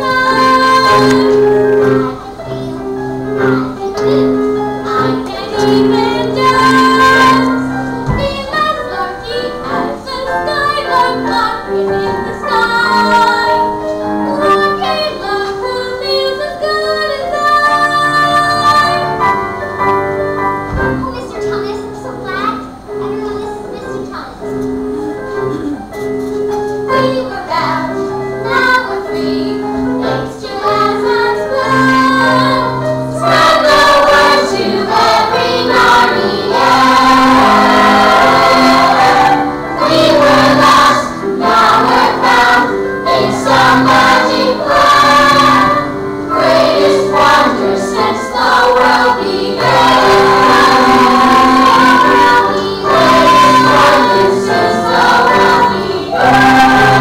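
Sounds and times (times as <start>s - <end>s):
chorus of young voices singing: 0.0s - 2.1s, 3.3s - 19.5s, 26.9s - 57.0s
instrumental accompaniment: 0.0s - 57.0s.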